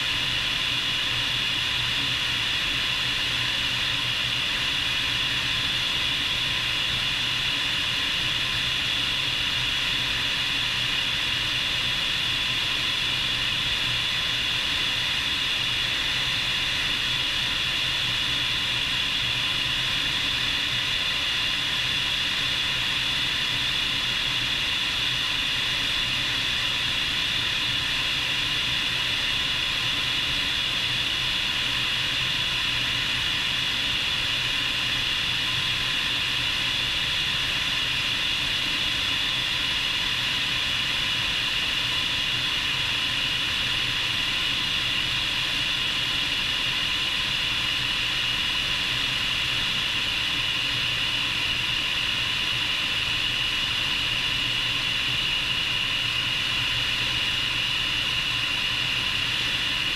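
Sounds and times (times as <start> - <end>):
rotor and air rush: 0.0 - 59.9.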